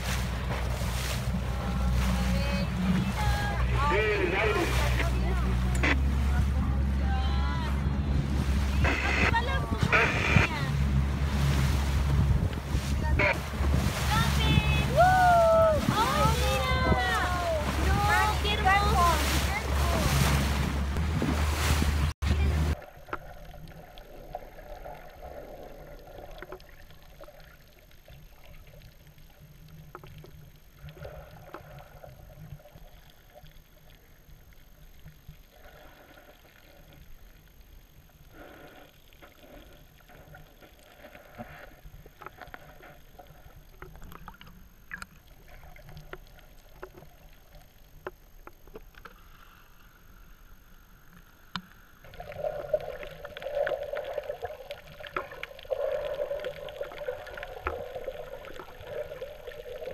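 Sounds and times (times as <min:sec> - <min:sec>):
wind on microphone: 0:00.0 - 0:22.8
boat noise rumbling: 0:00.0 - 0:26.8
muffled water sloshing underwater: 0:00.0 - 0:59.9
water splashing: 0:00.0 - 0:59.9.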